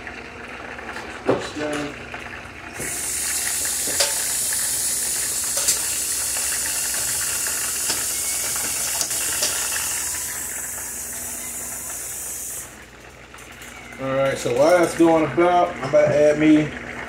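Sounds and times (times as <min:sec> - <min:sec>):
oil popping: 0:00.3 - 0:13.8
chicken sizzling in a pan: 0:02.8 - 0:12.8.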